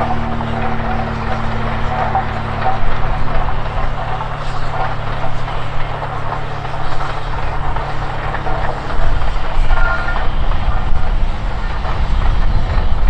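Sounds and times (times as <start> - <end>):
large engine idling: 0.0 - 13.0.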